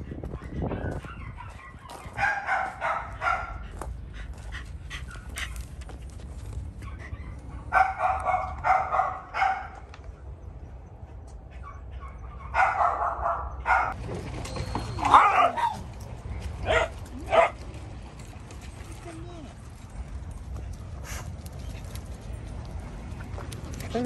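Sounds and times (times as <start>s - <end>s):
dog barking: 0.4s - 3.7s, 6.9s - 9.8s, 11.6s - 14.0s, 15.1s - 15.8s, 16.6s - 17.6s.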